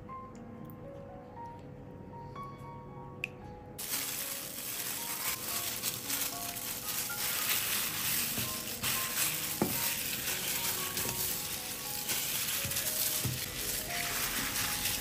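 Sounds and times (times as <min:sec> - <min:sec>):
wet crackling of marinade mixed: 0:03.8 - 0:15.0.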